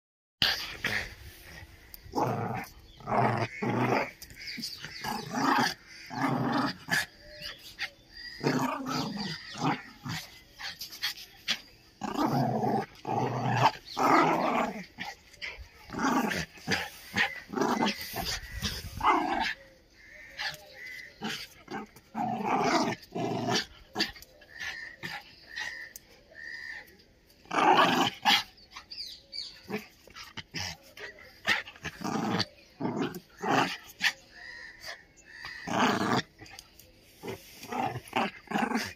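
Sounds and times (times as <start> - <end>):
dogs growling: 0.4 - 26.0, 27.4 - 28.6, 29.3 - 38.9.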